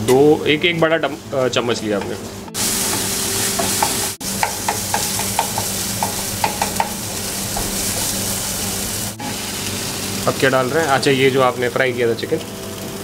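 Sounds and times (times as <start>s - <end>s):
spinach sizzling in frying pan: 0.4s - 13.0s
spatula scraping and tapping pan: 2.8s - 8.2s.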